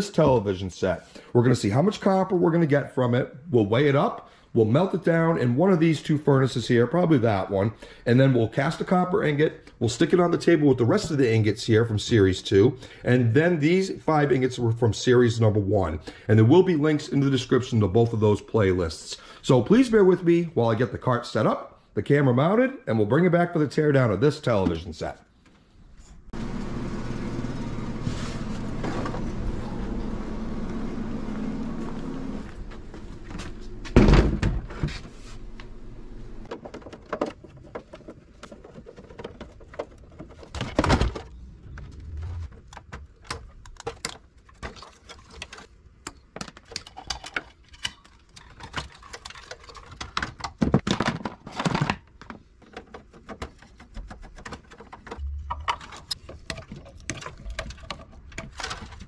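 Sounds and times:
plastic clatter and rattles: 0:36.5 - 0:59.0.

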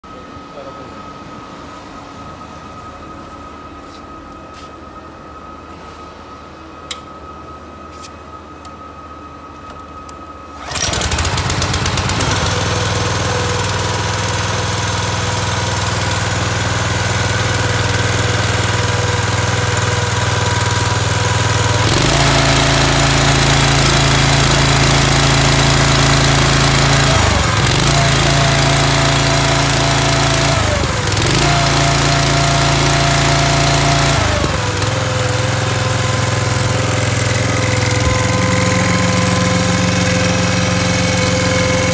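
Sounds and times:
petrol engine running: 0:10.6 - 0:41.9.

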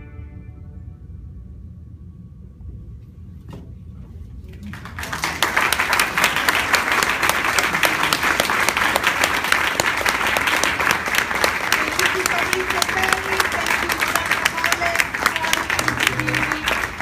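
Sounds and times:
audience applause: 0:04.6 - 0:17.0.

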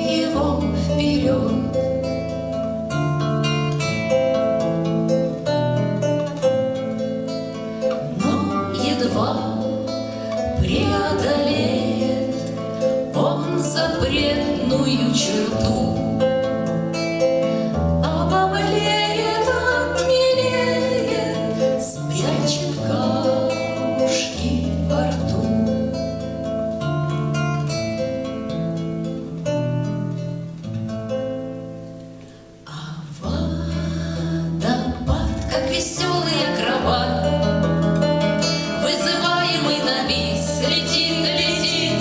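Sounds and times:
acoustic guitar picking: 0:00.0 - 0:42.0
person singing: 0:08.0 - 0:16.3, 0:18.0 - 0:25.9, 0:32.7 - 0:37.5, 0:38.5 - 0:42.0.

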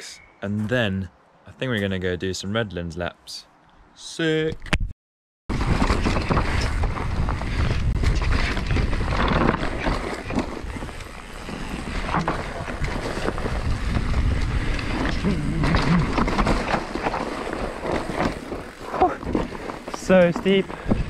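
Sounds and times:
bike knocks and rattles: 0:05.5 - 0:21.0
bike tyres on dirt: 0:05.5 - 0:21.0
wind buffeting microphone: 0:05.5 - 0:21.0.

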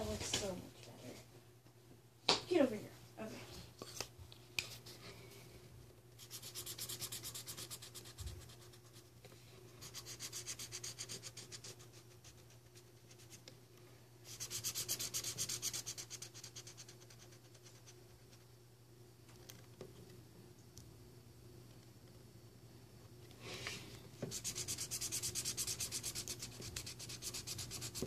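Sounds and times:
crayon scribbling on paper: 0:06.2 - 0:09.1, 0:09.8 - 0:13.4, 0:14.2 - 0:18.4, 0:24.2 - 0:28.0.

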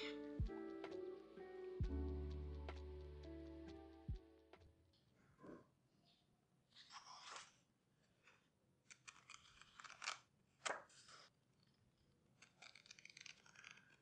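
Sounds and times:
paper pages flipping: 0:06.7 - 0:07.6, 0:08.2 - 0:11.3, 0:12.4 - 0:14.0.

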